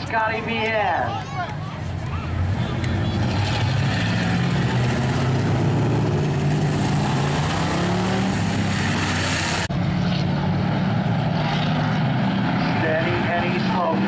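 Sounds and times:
race car engines droning: 0.0 - 14.0.

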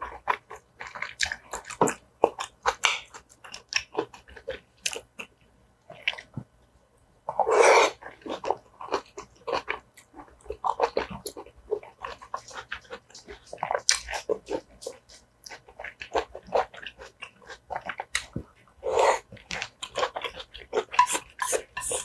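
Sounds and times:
chewing and wet mouth sounds: 0.0 - 22.0.

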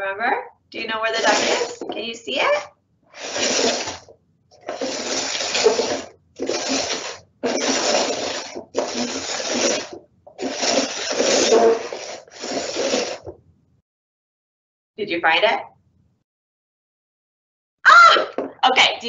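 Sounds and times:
cups scraping across a tray: 1.1 - 2.0, 3.2 - 13.3.

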